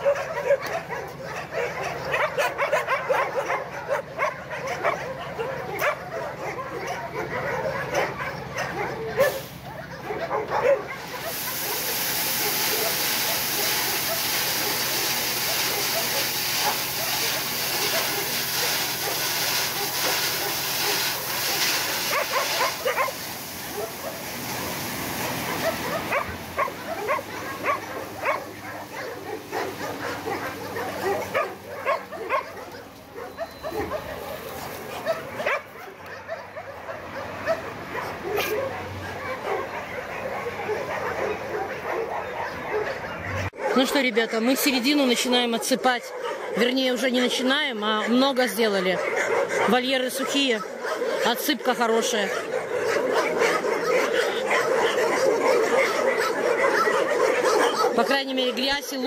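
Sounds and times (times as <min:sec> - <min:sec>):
dogs barking and yelping: 0:00.0 - 0:59.0
gravel pouring off truck bed: 0:11.0 - 0:29.7.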